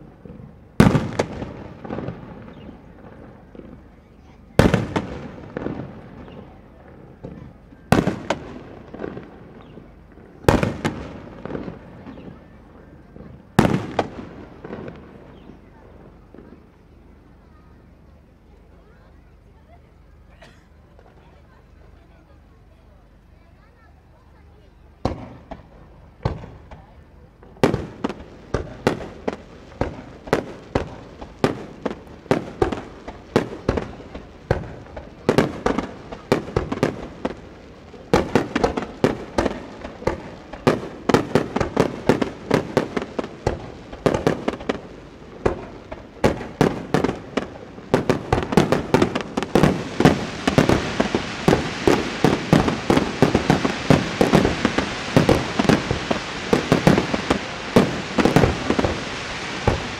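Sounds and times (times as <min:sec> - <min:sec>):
crackling hiss: 0:00.0 - 0:59.9
fireworks bursting: 0:00.0 - 0:59.9.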